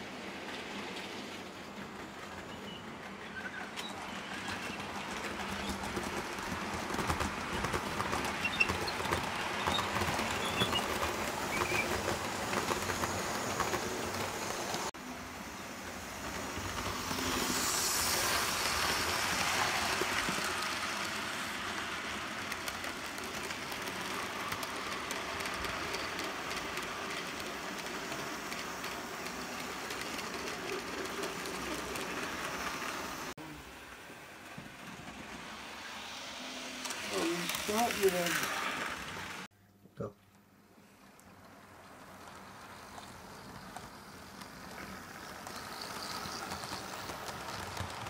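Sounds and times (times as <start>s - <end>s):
model train wheels rattling on rails: 0.4s - 15.0s, 16.0s - 33.3s, 34.0s - 39.5s, 41.1s - 48.0s.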